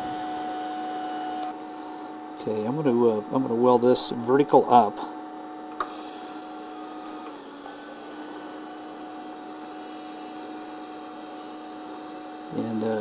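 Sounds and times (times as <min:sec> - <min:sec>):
small click: 0:05.7 - 0:05.9.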